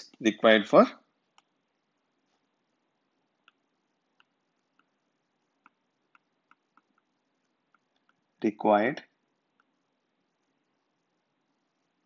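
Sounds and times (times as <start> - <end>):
stylus tapping glass screen: 3.4 - 8.3.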